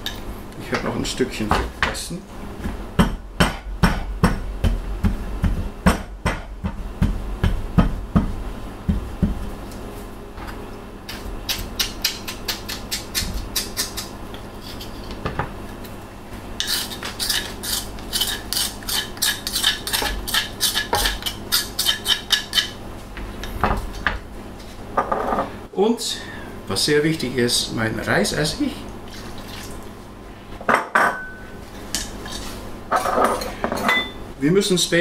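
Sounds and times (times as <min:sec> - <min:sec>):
knife chopping on cutting board: 0:03.0 - 0:08.3.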